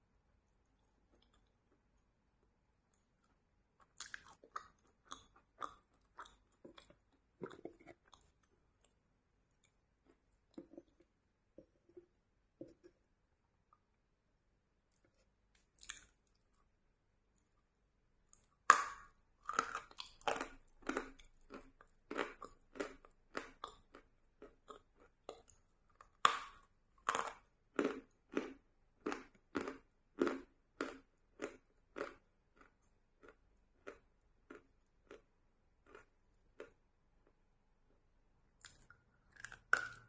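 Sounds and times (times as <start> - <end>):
crunchy chewing: 3.2 - 11.0, 14.9 - 16.6, 19.4 - 37.4, 38.6 - 40.0.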